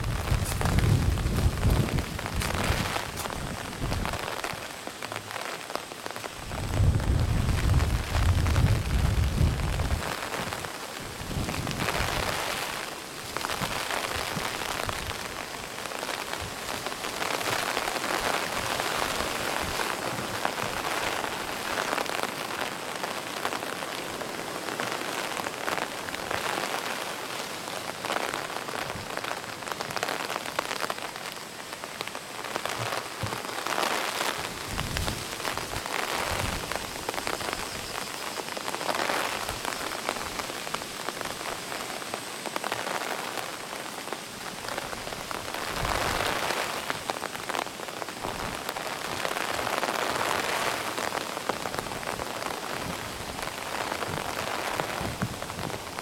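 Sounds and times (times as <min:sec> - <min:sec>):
wind rumble on microphone: 0:00.0 - 0:04.6, 0:06.4 - 0:15.7, 0:34.4 - 0:38.0, 0:44.7 - 0:47.0, 0:51.6 - 0:56.0
heavy rain falling: 0:00.0 - 0:56.0.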